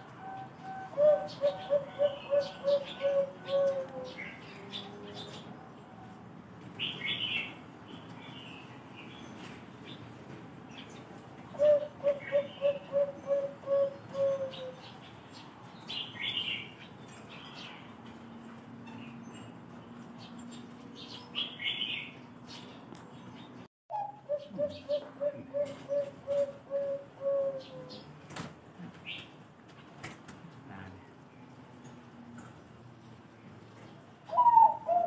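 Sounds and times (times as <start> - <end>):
birds chirping: 0.0 - 6.2
dove cooing: 0.0 - 6.2, 11.5 - 14.9, 23.9 - 28.1, 34.3 - 35.0.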